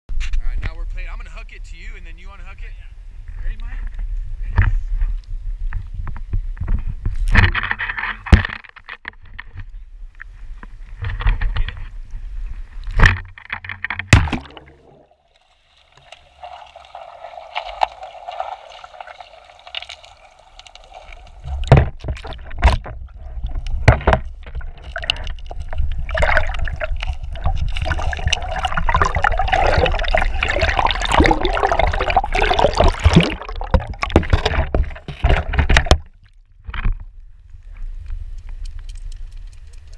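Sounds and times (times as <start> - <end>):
underwater river water rushing: 12.0 - 37.0
water splashing: 12.8 - 36.8.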